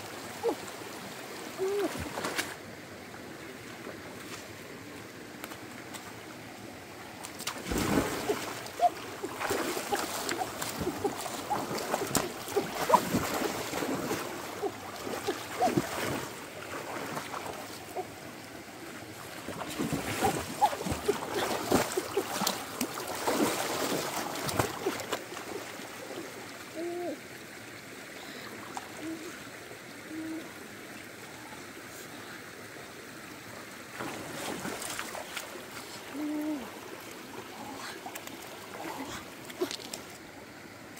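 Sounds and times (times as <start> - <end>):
stream rushing: 0.0 - 40.9
water splashing from wading: 0.1 - 2.7, 7.1 - 26.6, 33.9 - 40.7.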